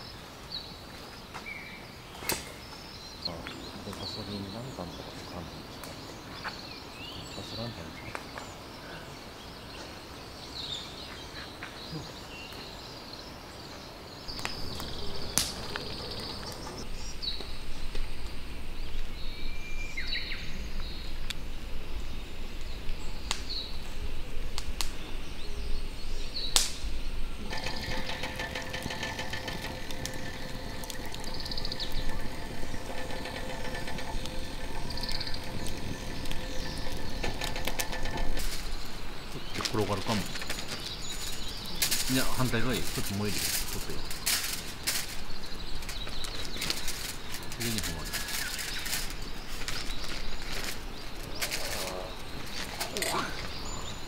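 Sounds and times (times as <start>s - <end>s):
birds chirping: 0.0s - 54.0s
low crackling rumble: 14.2s - 19.6s, 20.4s - 54.0s
steady buzzing hum: 27.2s - 41.1s.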